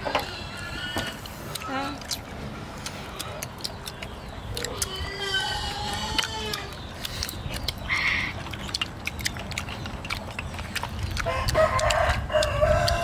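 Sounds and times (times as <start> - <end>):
rooster crowing: 11.3 - 13.0.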